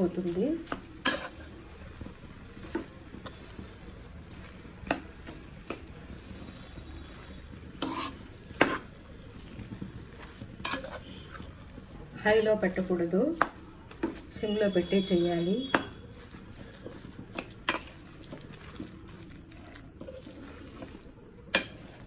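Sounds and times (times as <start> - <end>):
spatula scraping food in pan: 0.0 - 12.1, 13.1 - 22.0
soft sizzle: 0.0 - 22.0
spatula clacking against pan: 4.8 - 5.9, 13.3 - 14.3, 15.7 - 16.0, 20.8 - 22.0.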